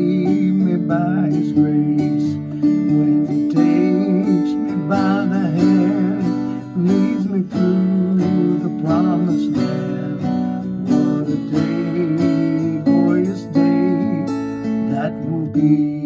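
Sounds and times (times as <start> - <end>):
acoustic guitar strumming: 0.0 - 16.0
man singing a hymn: 0.0 - 16.0.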